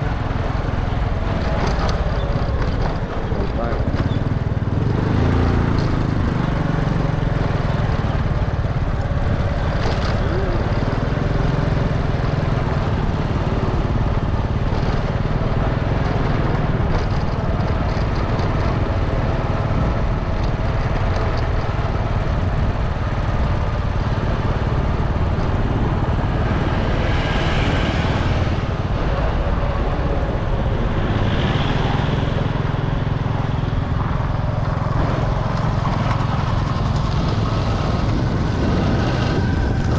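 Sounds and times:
small motorbike engine running: 0.0 - 39.9
wind and road noise: 0.0 - 39.9.

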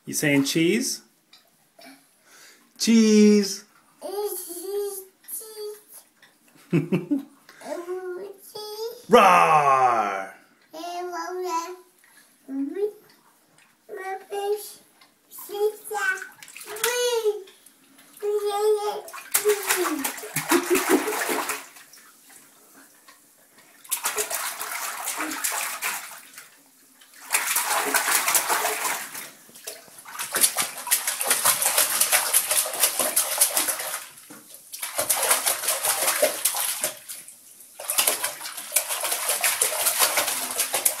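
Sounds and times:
baby splashing bathwater: 9.1 - 10.3, 15.4 - 41.0.

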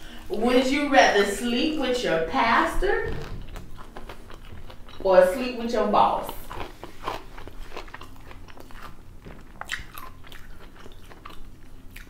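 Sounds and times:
woman chewing: 3.2 - 5.5, 6.2 - 12.0.

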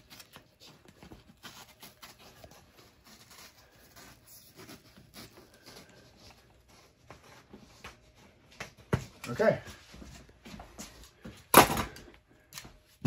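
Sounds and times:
gloved hands rustling on foam: 0.0 - 8.4.

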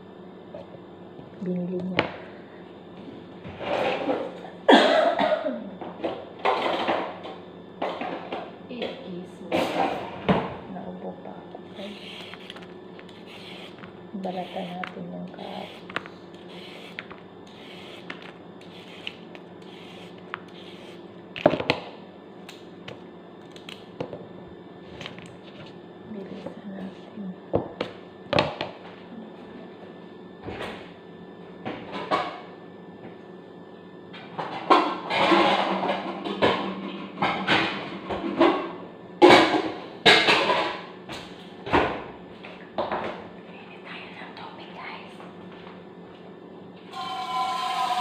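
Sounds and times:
vegetable peeler scraping carrot: 11.8 - 21.0.

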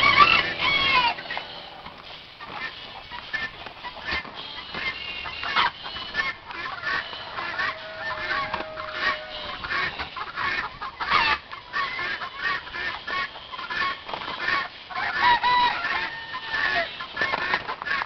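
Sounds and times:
long steady note: 0.0 - 3.0, 5.8 - 10.2
chickens clucking: 0.0 - 18.0.

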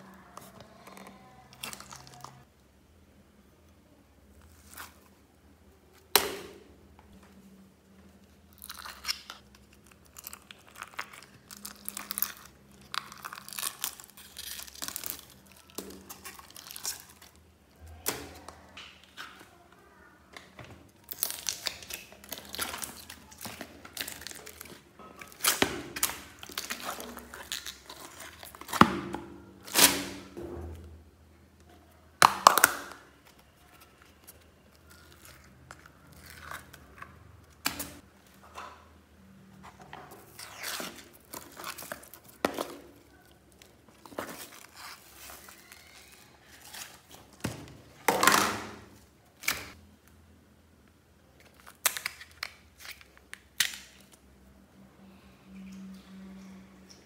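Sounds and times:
sticky slime squelching: 0.0 - 2.5, 8.1 - 30.4, 39.4 - 49.8
plastic bag crinkling: 8.6 - 18.4, 21.0 - 28.8, 40.1 - 49.0.

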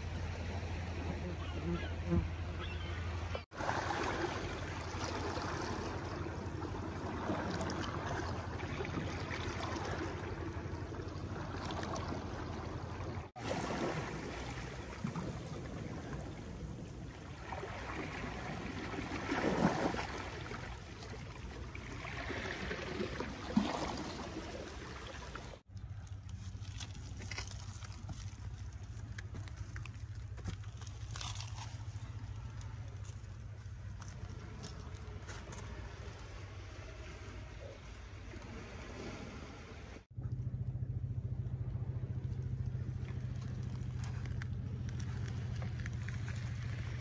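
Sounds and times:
sea water lapping on rocks: 3.4 - 33.3, 42.4 - 47.0.

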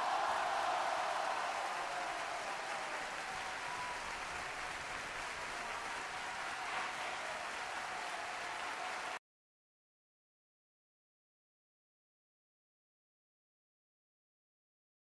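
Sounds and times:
crowd applauding: 0.0 - 9.2.

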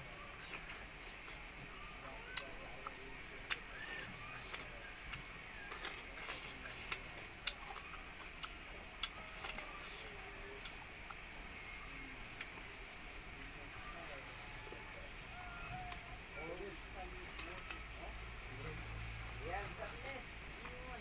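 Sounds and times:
close chewing with mouth clicks: 2.3 - 11.3, 17.2 - 18.2.

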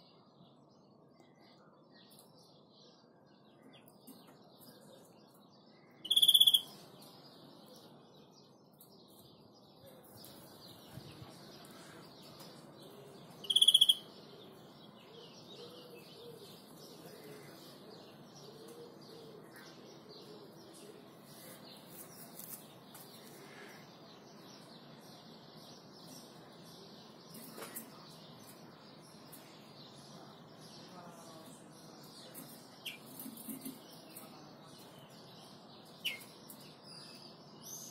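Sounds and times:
faint birds chirping: 0.0 - 37.9
bird trill: 6.0 - 6.8, 13.4 - 14.2.

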